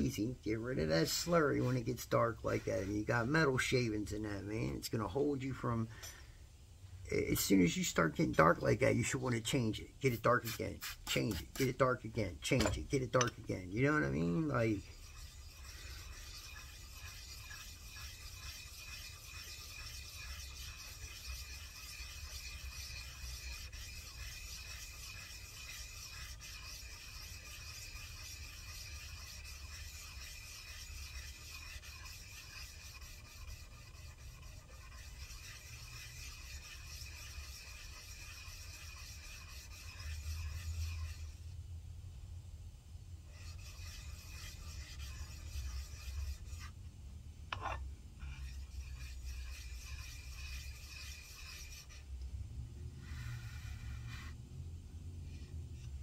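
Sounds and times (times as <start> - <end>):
metal scrubbing on wet abrasive: 10.2 - 41.4, 43.3 - 46.8, 47.5 - 52.0.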